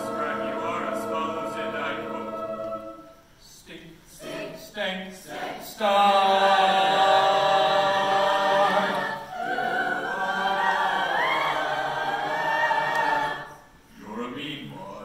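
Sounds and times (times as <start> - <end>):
children's choir singing: 0.0 - 15.0.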